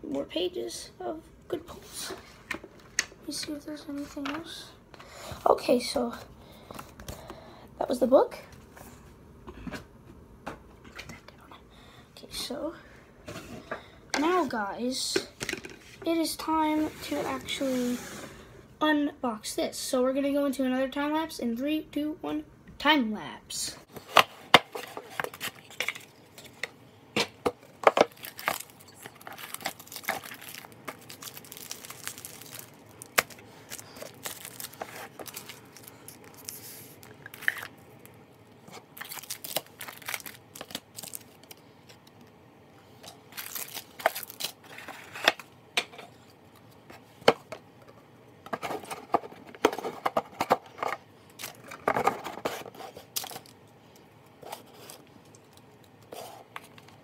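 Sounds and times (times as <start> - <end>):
packaging crinkling and tearing: 27.9 - 41.6, 43.3 - 45.4, 51.4 - 53.6.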